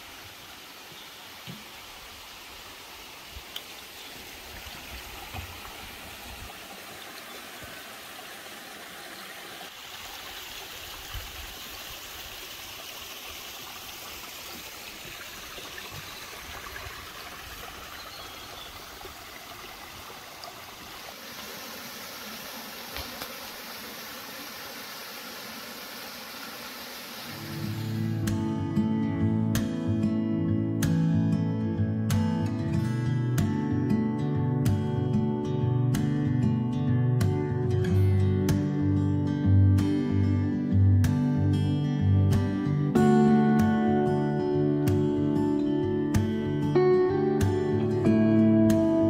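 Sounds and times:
stream running over stones: 0:00.0 - 0:28.5.

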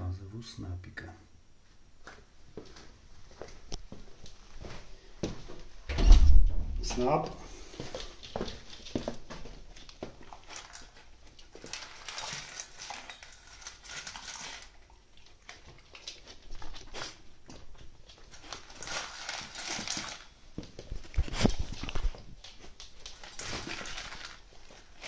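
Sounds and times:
low bump: 0:05.9 - 0:07.1
dog crunching kibble: 0:07.9 - 0:25.0.

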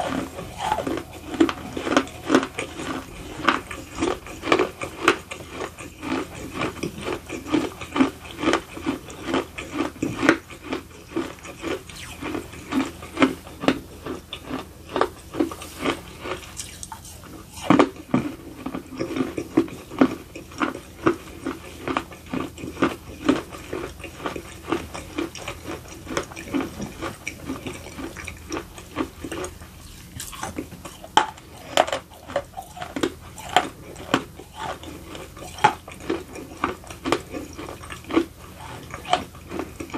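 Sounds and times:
gritty crunching chews: 0:00.0 - 0:39.9
moist mouth sounds: 0:11.6 - 0:13.0, 0:15.4 - 0:18.4.

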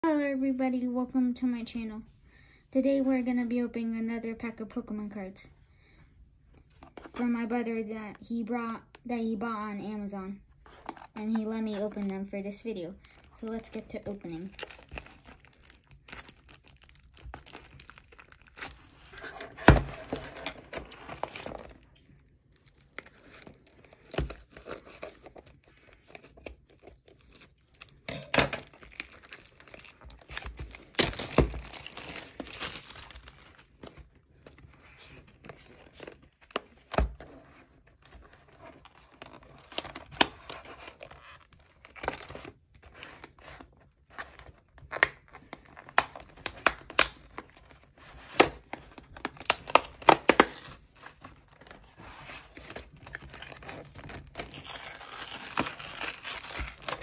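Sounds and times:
packaging tearing and crinkling: 0:13.0 - 0:36.8, 0:38.0 - 0:57.0.

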